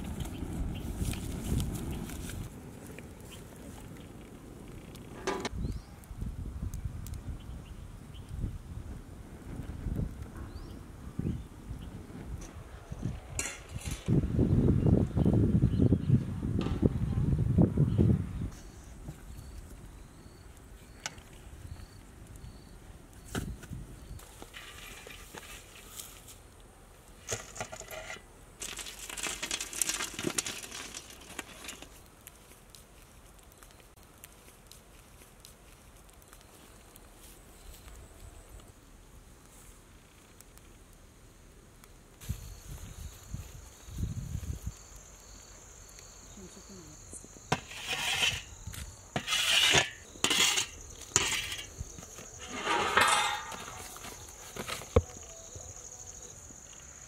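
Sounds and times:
coals clinking on metal lid: 0:13.4 - 0:14.1, 0:49.2 - 0:54.8
insects droning: 0:39.9 - 0:57.0.

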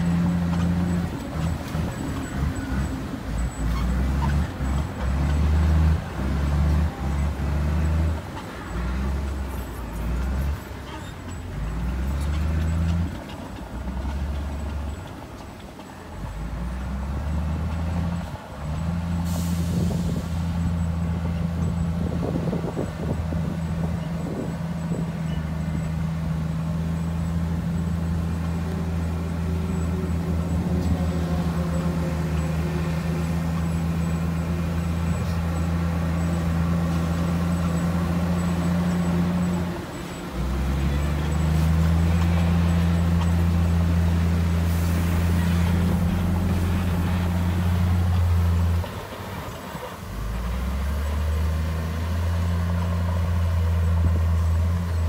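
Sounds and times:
heavy diesel engine under load: 0:00.0 - 0:55.0
air hiss: 0:19.2 - 0:20.6.

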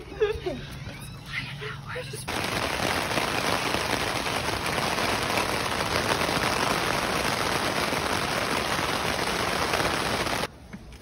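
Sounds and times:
steady rain falling: 0:02.3 - 0:10.5.

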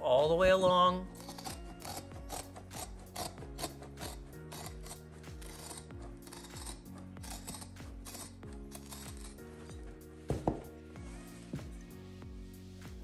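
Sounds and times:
background music with steady beat: 0:00.0 - 0:13.0
scissors snipping carpet: 0:01.1 - 0:10.0.

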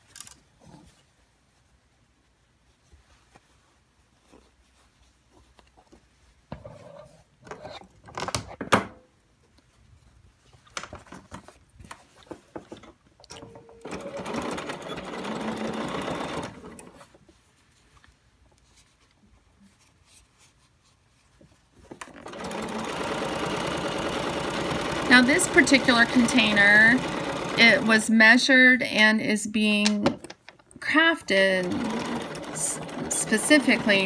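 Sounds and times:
sewing machine stitching: 0:13.4 - 0:17.1, 0:22.0 - 0:28.0, 0:31.3 - 0:34.0.

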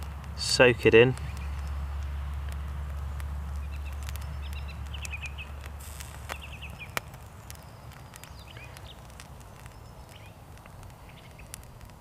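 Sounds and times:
burning wick crackles: 0:00.0 - 0:12.0
wind rumble on microphone: 0:00.0 - 0:12.0
small birds chirping: 0:00.4 - 0:12.0.

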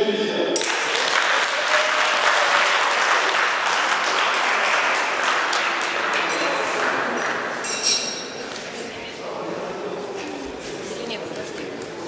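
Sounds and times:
audience applauding: 0:00.6 - 0:07.6.

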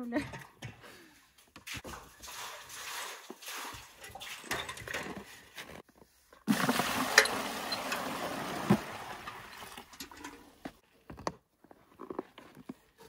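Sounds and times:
water pouring into bucket: 0:01.8 - 0:04.6, 0:06.5 - 0:10.0.

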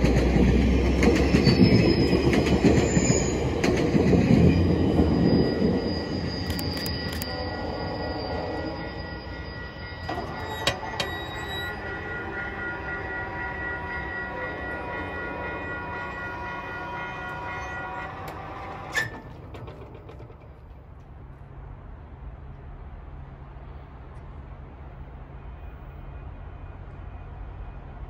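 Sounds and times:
level crossing warning bell: 0:00.0 - 0:20.2
freight train rumbling past: 0:00.0 - 0:28.0.

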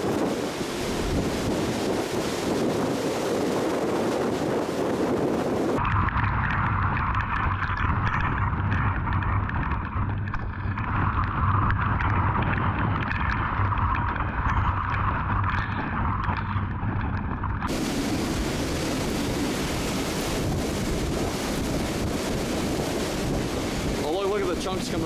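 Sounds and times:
wind buffeting microphone: 0:00.0 - 0:25.0
rain ticking on metal: 0:17.7 - 0:25.0.

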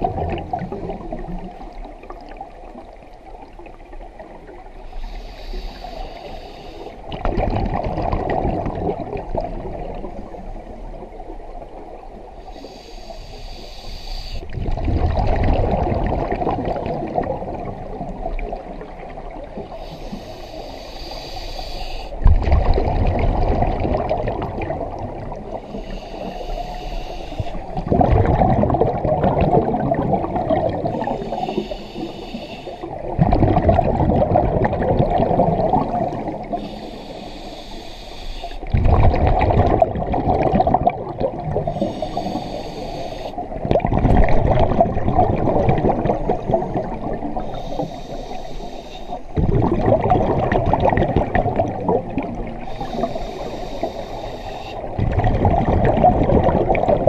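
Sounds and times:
gurgle of exhaled bubbles: 0:00.0 - 0:04.7, 0:07.0 - 0:12.1, 0:14.5 - 0:19.8, 0:22.2 - 0:25.8, 0:27.4 - 0:31.7, 0:32.8 - 0:36.6, 0:38.6 - 0:48.0, 0:49.3 - 0:54.0, 0:54.8 - 0:57.0
diver inhaling through regulator: 0:04.8 - 0:07.0, 0:12.5 - 0:14.6, 0:19.7 - 0:22.2, 0:25.5 - 0:27.9, 0:30.7 - 0:33.0, 0:36.0 - 0:38.7, 0:41.6 - 0:43.4, 0:46.4 - 0:49.4, 0:52.5 - 0:54.9.

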